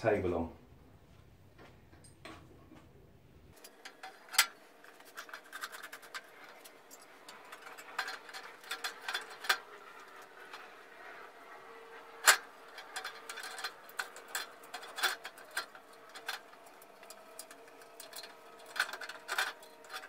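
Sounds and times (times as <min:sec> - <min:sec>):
metal parts clicking and knocking: 0:03.6 - 0:10.9, 0:12.2 - 0:20.0.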